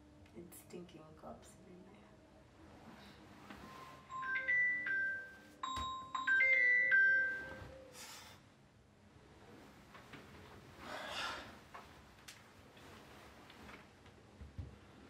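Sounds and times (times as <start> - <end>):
mobile phone ringtone melody: 3.7 - 7.9.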